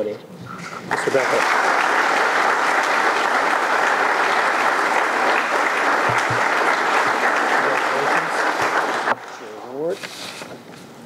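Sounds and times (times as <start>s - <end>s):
audience applauding: 0.9s - 9.5s.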